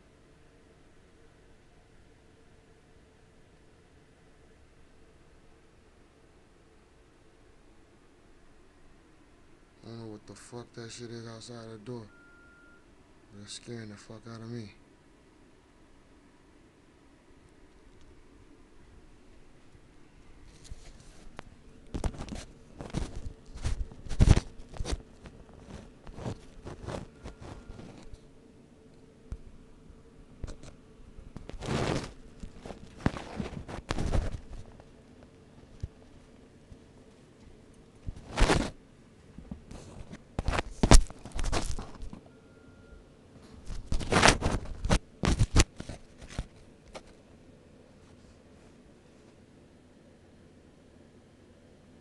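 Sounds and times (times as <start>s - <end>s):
phone handling rustling: 20.5s - 28.2s.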